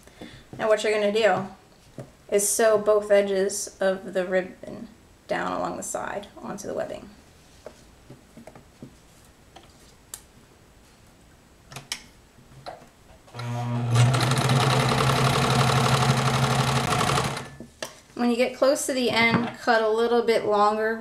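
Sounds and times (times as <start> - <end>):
electric sewing machine running: 13.4 - 17.6.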